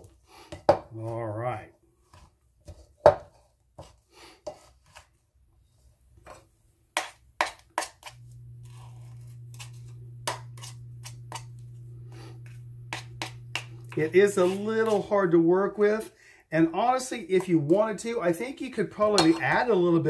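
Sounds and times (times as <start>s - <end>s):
utensils scraping a ceramic bowl: 7.0s - 15.1s
steady low hum: 8.2s - 14.7s.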